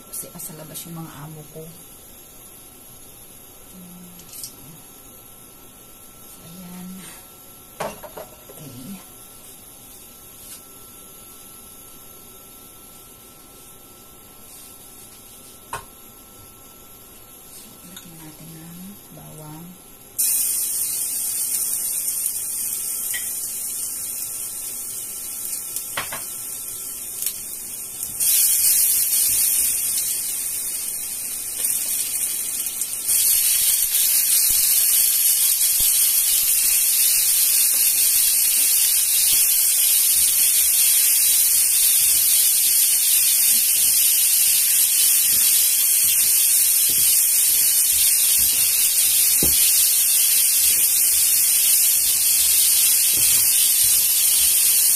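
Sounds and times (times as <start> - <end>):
garlic sizzling in hot oil: 20.2 - 54.9.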